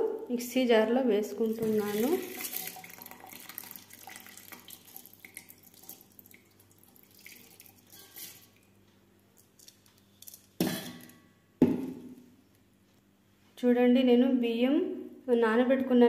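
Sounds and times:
water trickling and dripping: 0:01.4 - 0:08.8.

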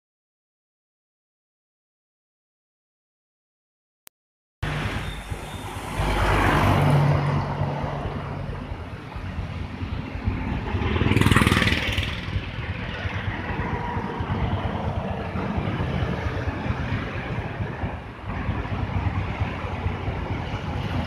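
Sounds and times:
car engines: 0:04.6 - 0:21.0
motorcycle engine: 0:04.6 - 0:21.0
tyre noise on road: 0:04.6 - 0:21.0
vehicle passing close: 0:04.6 - 0:21.0.

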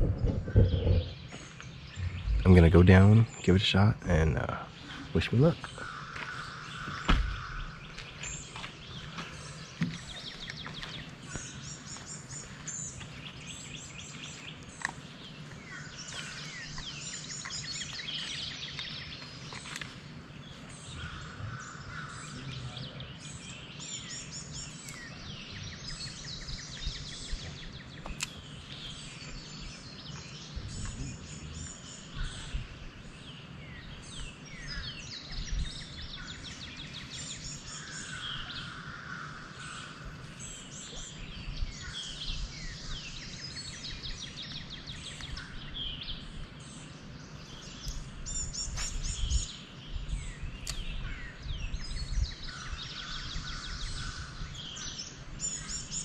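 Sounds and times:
low steady rumble: 0:00.0 - 0:04.1
songbirds chirping and singing: 0:00.0 - 0:56.0.

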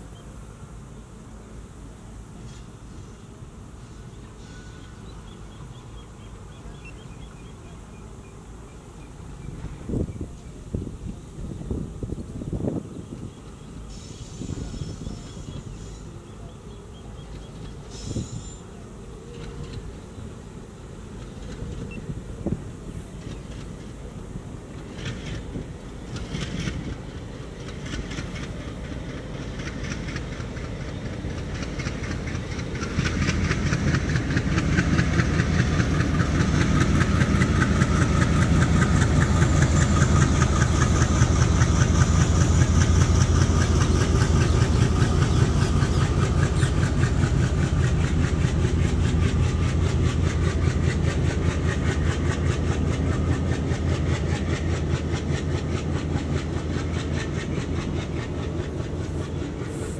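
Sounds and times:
train wheels clattering on rails: 0:19.3 - 0:20.0, 0:21.0 - 0:59.9.

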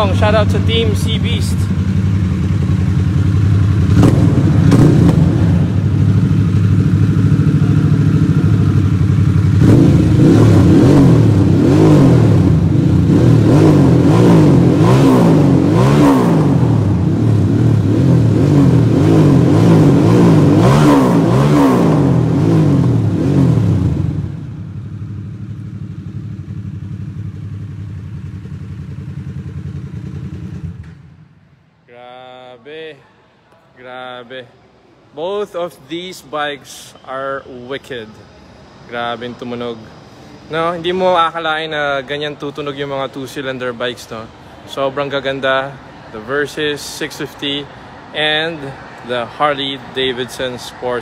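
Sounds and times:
motorcycle engine idling: 0:00.0 - 0:13.2, 0:23.0 - 0:31.3
motorcycle engine revving: 0:00.0 - 0:31.4.

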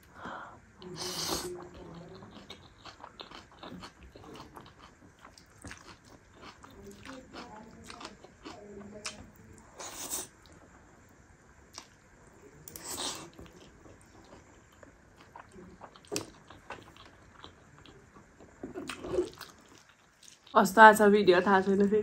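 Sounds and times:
biting and chewing food: 0:01.6 - 0:10.7, 0:12.6 - 0:20.6.

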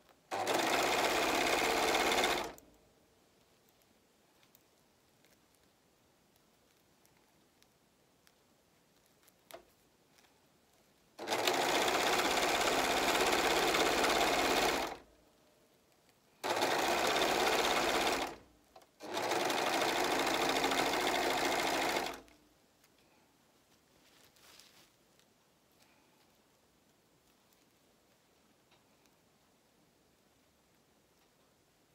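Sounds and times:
serger stitching fabric: 0:00.0 - 0:02.6, 0:11.2 - 0:15.1, 0:16.4 - 0:22.3.

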